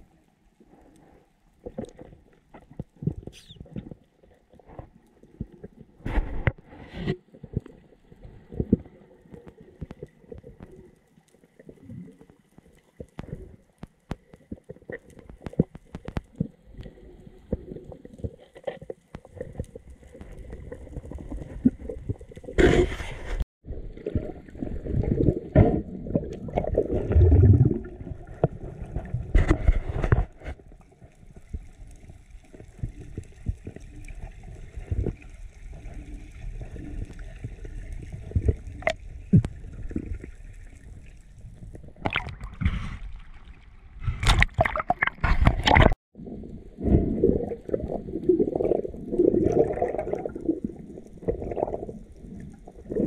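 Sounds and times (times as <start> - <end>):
underwater water rushing: 19.3 - 53.0.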